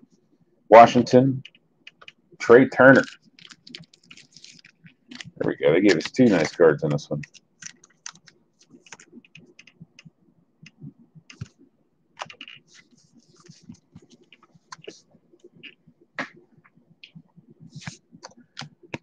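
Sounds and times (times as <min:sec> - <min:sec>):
plastic sleeve and card rustling: 0:02.8 - 0:09.5.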